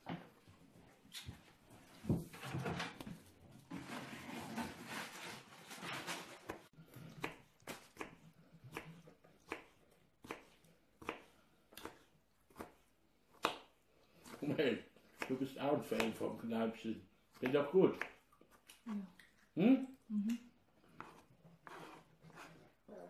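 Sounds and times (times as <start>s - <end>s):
knife cutting on plastic board: 20.9s - 22.7s.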